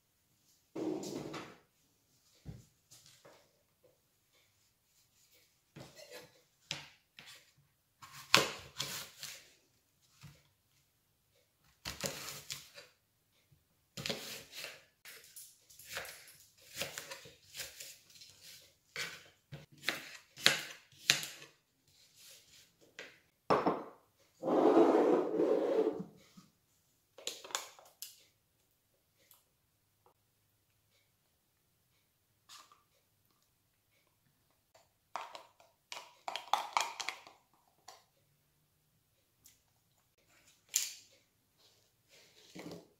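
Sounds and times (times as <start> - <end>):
knife cutting apple: 15.8 - 21.5.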